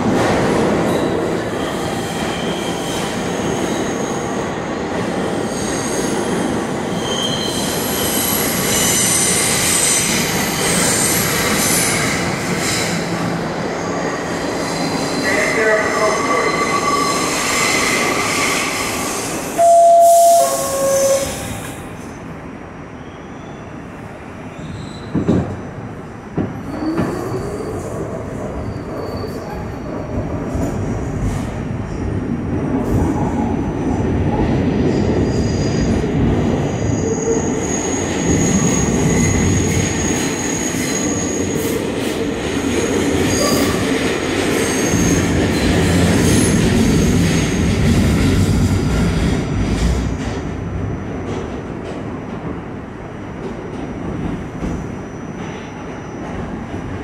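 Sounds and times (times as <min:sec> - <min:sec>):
high-pitched wheel squeal: 0:19.6 - 0:21.5
subway car thumps: 0:25.0 - 0:27.2.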